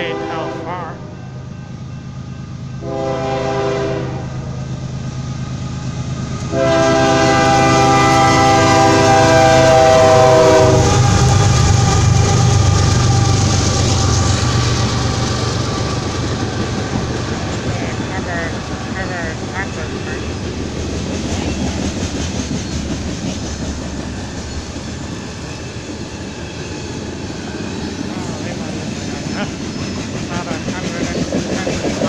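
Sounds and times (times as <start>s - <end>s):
locomotive horn blasts: 0.0s - 1.0s, 2.8s - 4.4s, 6.5s - 11.4s
locomotive engine rumble: 0.0s - 32.0s.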